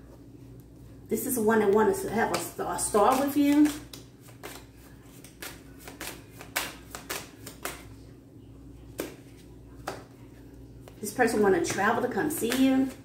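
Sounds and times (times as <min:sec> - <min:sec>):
faint steady hum: 0:00.0 - 0:13.0
cards tapping and snapping: 0:02.3 - 0:07.9, 0:08.9 - 0:09.2.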